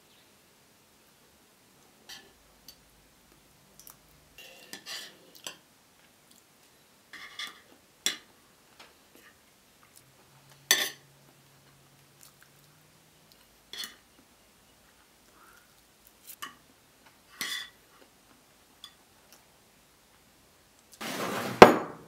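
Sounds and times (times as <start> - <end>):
cutlery scraping and clinking on plate: 4.4 - 5.6, 7.1 - 8.3, 10.6 - 11.1, 13.7 - 14.0, 17.3 - 17.8.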